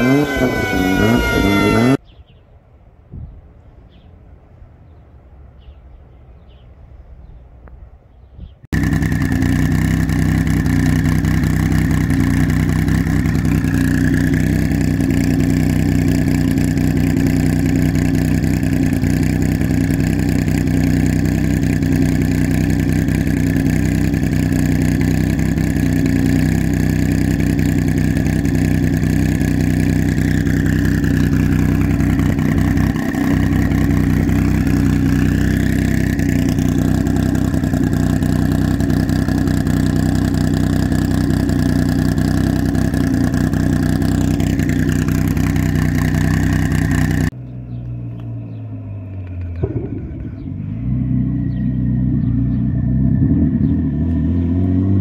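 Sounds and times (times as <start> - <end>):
car engine idling: 8.7 - 55.0.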